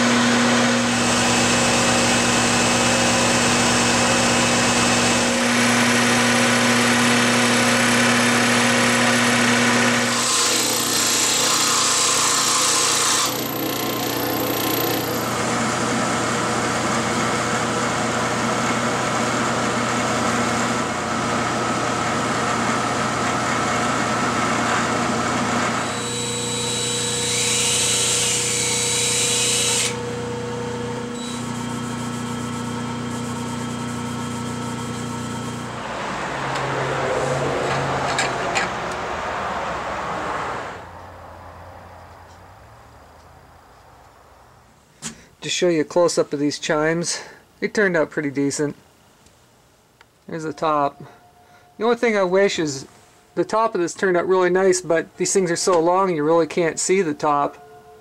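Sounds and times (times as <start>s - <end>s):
cordless drill: 0.0s - 20.9s, 24.1s - 30.2s, 31.0s - 35.7s
milling machine drilling: 0.0s - 30.3s, 30.9s - 35.8s
metal lathe spinning: 0.0s - 35.9s.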